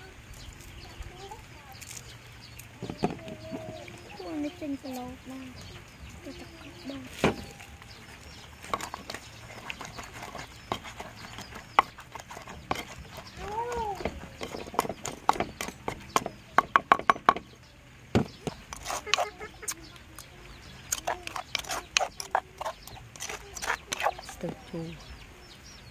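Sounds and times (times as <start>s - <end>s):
pestle pounding in wooden mortar: 2.8s - 3.8s, 8.6s - 19.7s, 20.9s - 24.6s.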